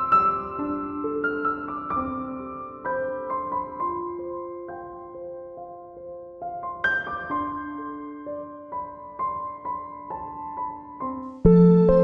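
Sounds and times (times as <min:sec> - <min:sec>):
piano notes ringing: 0:06.5 - 0:12.0.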